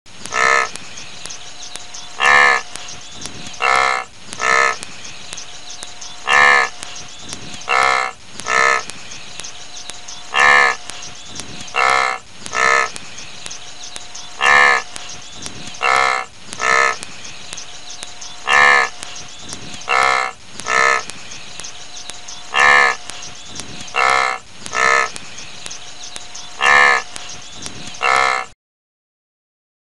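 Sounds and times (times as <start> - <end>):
wildebeest honking grunts: 0.3 - 0.7, 2.2 - 2.6, 3.6 - 4.8, 6.2 - 6.7, 7.7 - 8.8, 10.3 - 10.8, 11.8 - 12.9, 14.4 - 14.9, 15.8 - 17.0, 18.4 - 19.0, 19.9 - 21.0, 22.5 - 23.0, 24.0 - 25.1, 26.6 - 27.1, 28.0 - 28.5.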